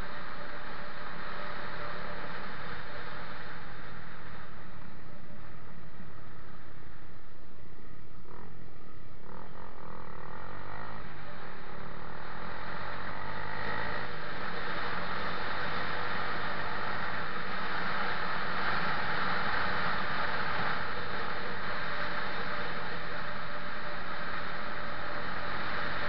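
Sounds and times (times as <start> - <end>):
motorcycle engine running: 0.0 - 26.0
wind rushing over microphone: 11.1 - 26.0.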